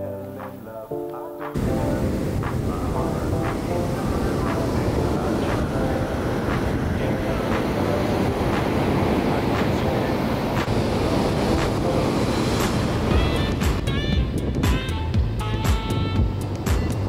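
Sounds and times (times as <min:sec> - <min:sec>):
waves washing: 0:00.0 - 0:17.0
waves knocking on wooden slats: 0:01.5 - 0:13.9.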